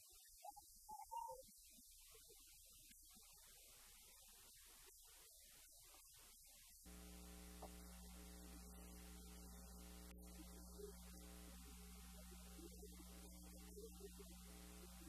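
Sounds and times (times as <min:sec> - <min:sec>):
faint electrical hum: 0:06.8 - 0:15.0.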